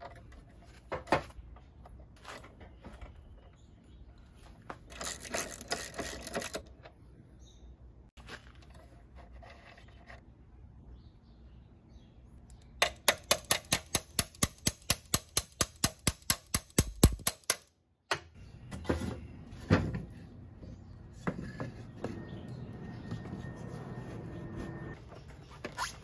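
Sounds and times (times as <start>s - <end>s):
hand ratchet clicking: 12.8s - 17.7s.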